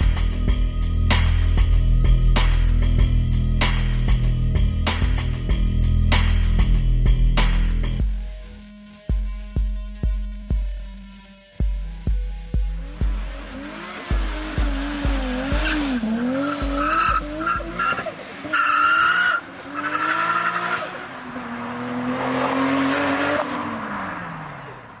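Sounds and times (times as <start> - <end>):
music with heavy beat: 0.0 - 18.0
car engine revving: 12.6 - 25.0.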